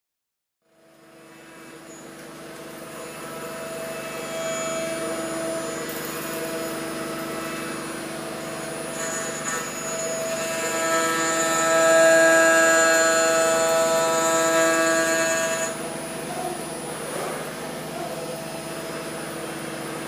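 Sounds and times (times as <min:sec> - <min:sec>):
router spindle whine: 0:00.8 - 0:20.0
metal cutting noise: 0:01.3 - 0:20.0
thin high squeal: 0:02.8 - 0:16.7.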